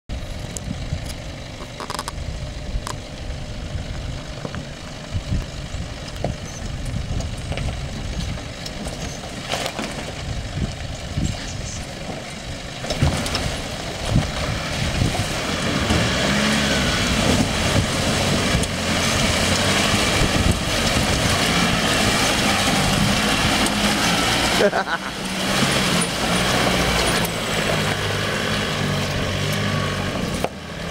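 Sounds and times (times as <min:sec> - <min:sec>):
vehicle engine running: 0:00.1 - 0:30.9
water splashing under wheels: 0:12.1 - 0:30.9.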